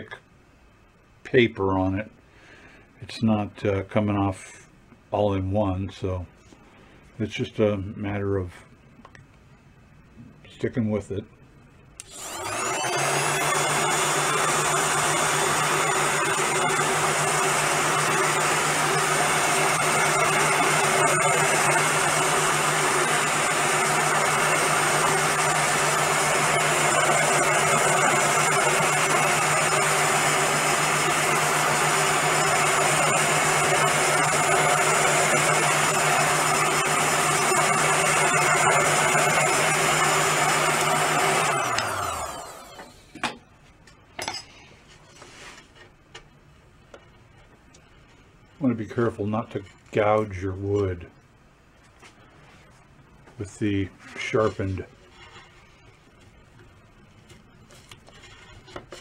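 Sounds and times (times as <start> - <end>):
heat gun running: 12.0 - 42.9.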